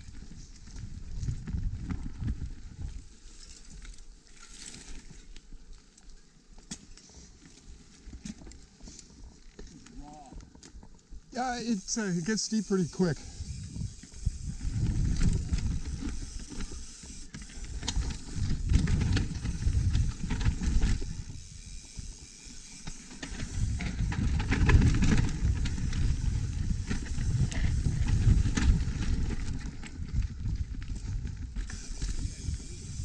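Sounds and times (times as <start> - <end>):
bike tyres rumbling over dirt: 0.0 - 3.8, 13.3 - 33.0
bike chain and stones rattling: 7.0 - 33.0
wind buffeting microphone: 13.2 - 16.4, 17.6 - 21.5, 23.4 - 33.0.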